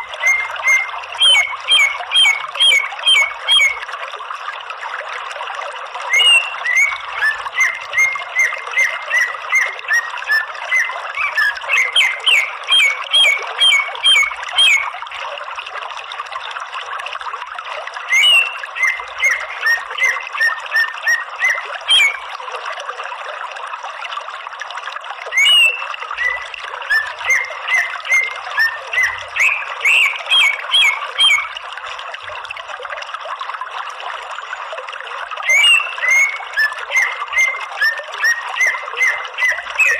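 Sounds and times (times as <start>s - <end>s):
bird calling with sharp high notes: 0.0s - 3.8s, 6.1s - 15.0s, 18.1s - 22.3s, 25.3s - 31.6s, 35.4s - 39.9s.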